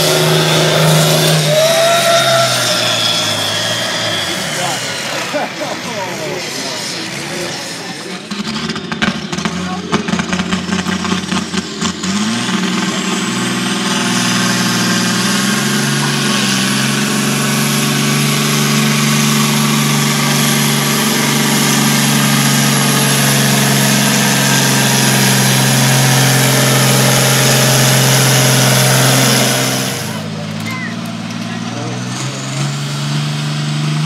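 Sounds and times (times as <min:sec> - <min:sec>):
tractor diesel engine droning: 0:00.0 - 0:34.0.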